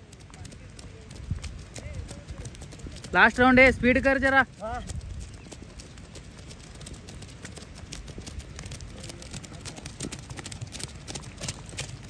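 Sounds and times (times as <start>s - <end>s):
feet splashing through puddles: 5.2s - 12.0s.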